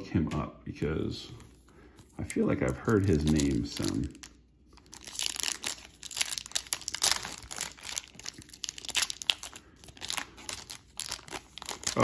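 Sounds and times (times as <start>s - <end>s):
foil wrapper crinkling: 2.5s - 12.0s.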